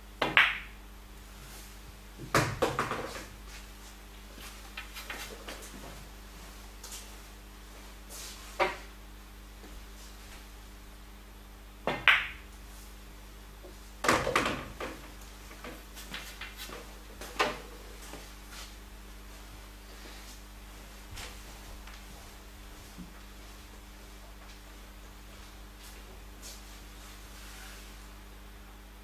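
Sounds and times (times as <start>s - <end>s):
pool balls clicking: 0.2s - 0.7s, 2.2s - 3.4s, 11.9s - 12.4s, 14.0s - 17.9s.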